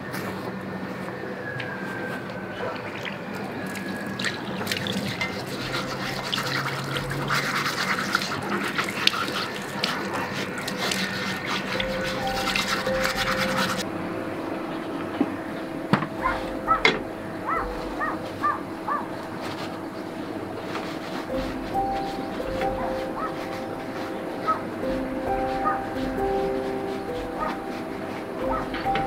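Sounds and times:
metal scrubber scouring cast iron: 3.8 - 13.8, 20.6 - 29.0.

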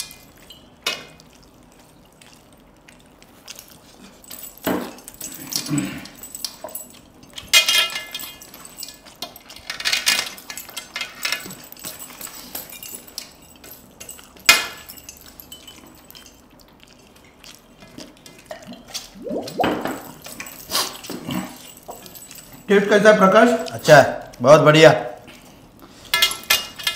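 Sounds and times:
rings clinking on metal: 19.2 - 24.0.

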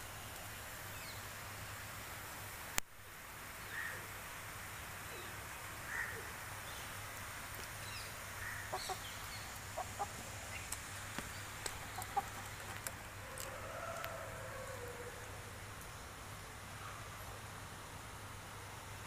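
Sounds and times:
faint steady hiss: 0.0 - 19.0
chickens clucking softly: 8.6 - 10.8, 11.6 - 15.2.

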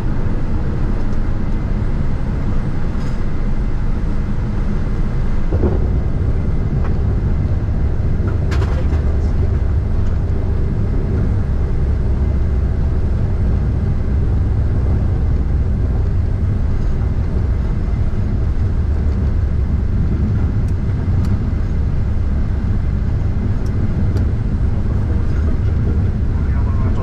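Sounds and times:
aircraft landing roll rumble: 0.0 - 27.0.

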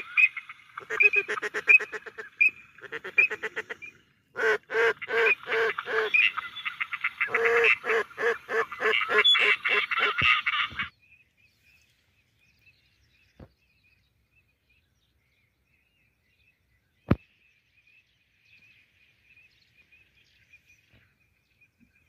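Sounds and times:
flock of waterfowl calling: 0.0 - 10.9.

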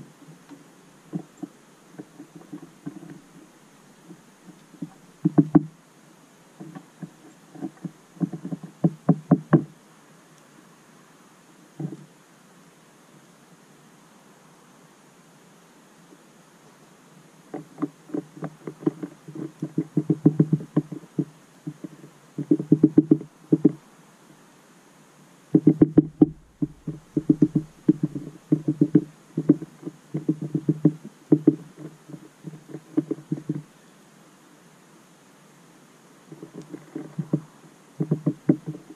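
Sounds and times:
bird beak tapping on plastic: 4.0 - 5.7, 6.6 - 9.7, 17.5 - 23.8, 25.6 - 33.6, 36.3 - 38.9.

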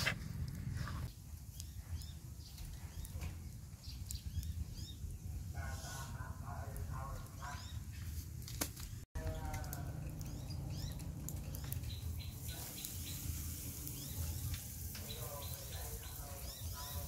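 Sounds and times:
low steady rumble: 0.0 - 1.1
small birds chirping: 0.0 - 8.2, 8.8 - 17.0.

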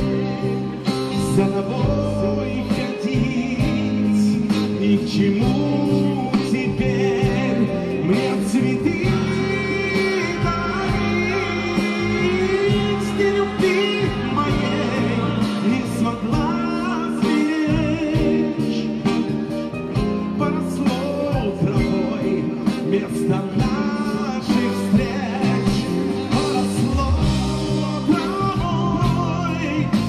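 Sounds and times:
live band playing: 0.0 - 30.0
wavering lead melody: 7.7 - 28.6.

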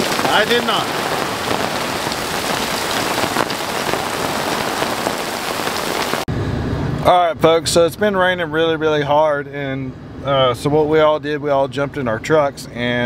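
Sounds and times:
heavy rain pouring: 0.0 - 6.3.

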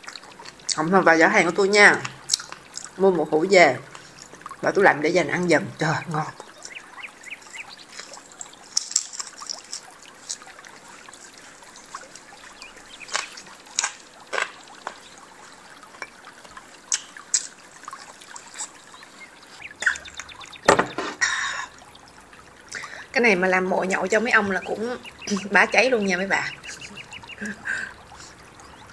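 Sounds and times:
sucking and chewing clicks: 2.0 - 3.0, 6.4 - 18.8.

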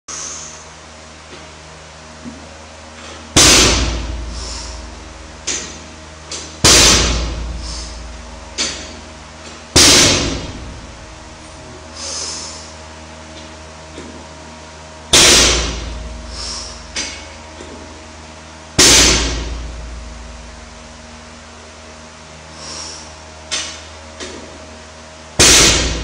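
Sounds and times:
barbell thudding on floor: 6.6 - 7.4.

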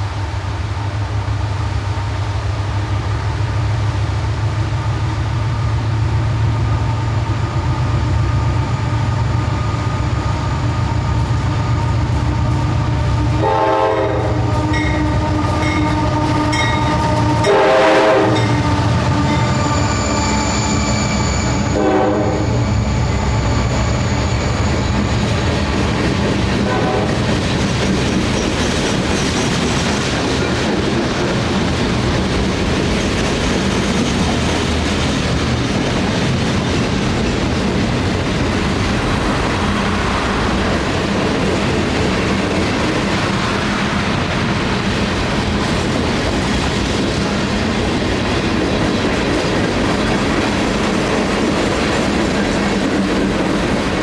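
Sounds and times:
diesel locomotive rumble: 0.0 - 54.0
locomotive air horn blasts: 13.2 - 20.1, 21.6 - 22.7, 26.6 - 27.2.

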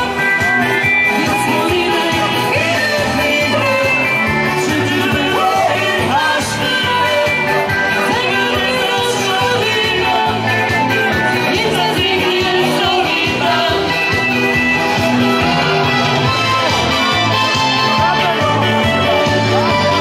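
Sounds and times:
person singing: 0.0 - 14.5
live band playing upbeat song: 0.0 - 20.0.

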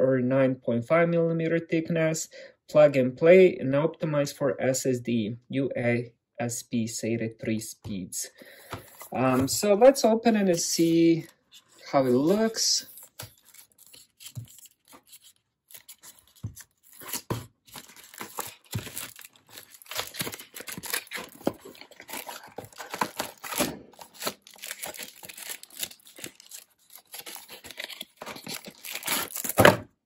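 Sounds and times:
crinkling and handling rustles: 8.5 - 30.0
cardboard flap tearing: 13.0 - 29.9.

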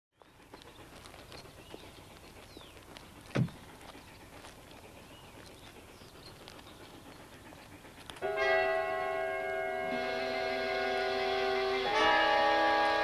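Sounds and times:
bird chirps: 0.2 - 2.8
footsteps on gravel: 0.2 - 8.2
car door shutting: 3.3 - 3.6.

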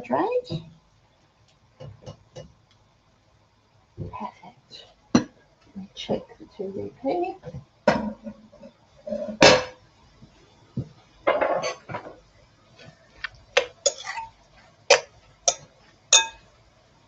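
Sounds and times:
glass bowl and utensils clinking: 11.3 - 12.2, 13.6 - 14.3, 14.9 - 16.5.

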